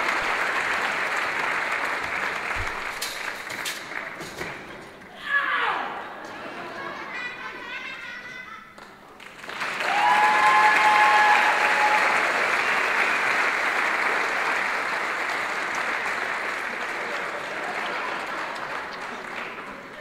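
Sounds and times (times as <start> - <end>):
audience applauding: 0.0 - 4.4, 8.8 - 20.0.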